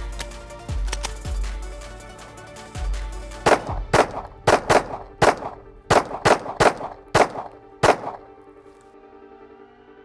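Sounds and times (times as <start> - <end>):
background music: 0.0 - 10.0
pistol shots: 3.4 - 8.3.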